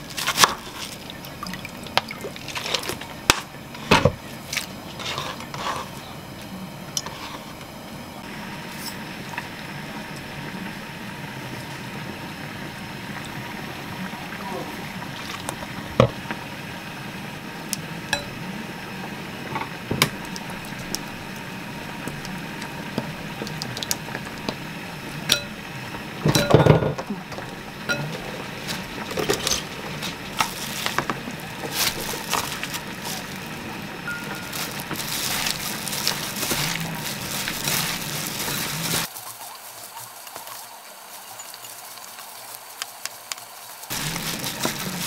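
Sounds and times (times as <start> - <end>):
plastic glove rustling: 0.0 - 6.1, 27.4 - 45.0.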